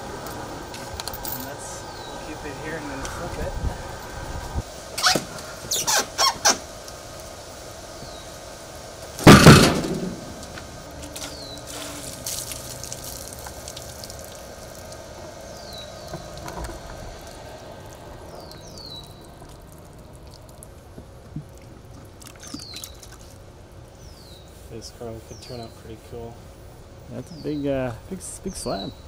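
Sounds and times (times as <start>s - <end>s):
heavy wood slab thump: 9.2s - 10.7s
water splashing from bucket: 11.3s - 16.5s, 17.2s - 23.4s.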